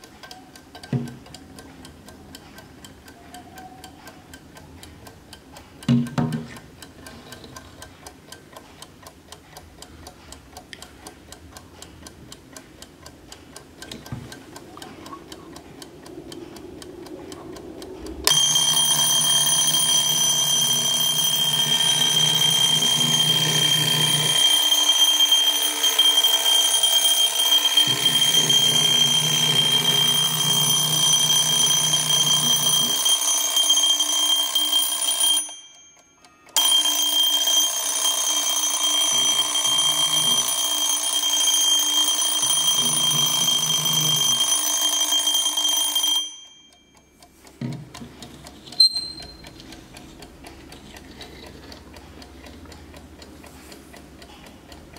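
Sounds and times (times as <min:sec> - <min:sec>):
clock ticking: 0:00.0 - 0:54.9
alarm clock metallic ringing: 0:18.3 - 0:47.4, 0:48.6 - 0:49.6.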